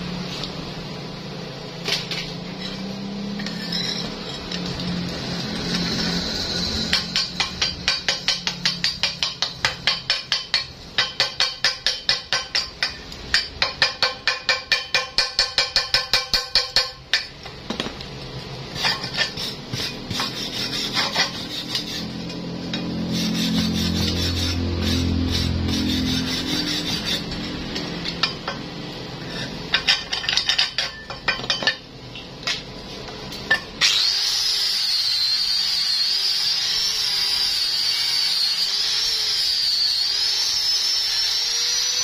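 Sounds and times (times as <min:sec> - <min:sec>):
power wire brush on weld: 0:01.8 - 0:10.9, 0:18.7 - 0:28.0, 0:33.8 - 0:42.0
hammer tapping on steel: 0:06.9 - 0:17.4.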